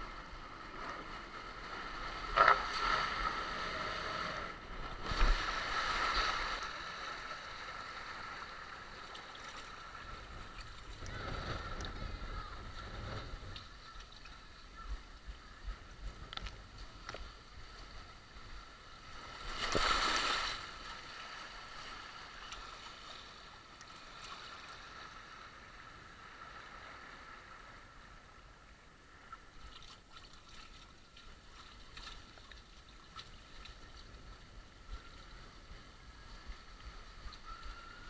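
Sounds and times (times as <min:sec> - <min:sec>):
water rushing and splashing: 0:00.0 - 0:14.6, 0:17.8 - 0:24.9.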